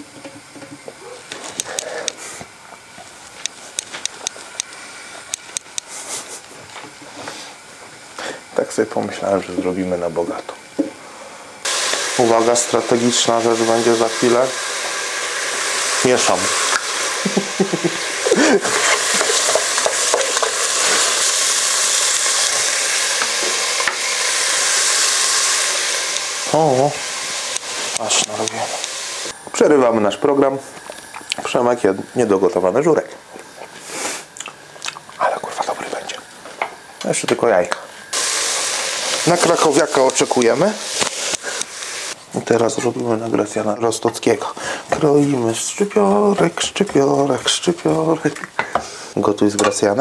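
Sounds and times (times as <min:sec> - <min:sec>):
food sizzling in a pot: 0:00.0 - 0:34.8, 0:36.2 - 0:50.0
spatula scraping pot: 0:18.2 - 0:21.2.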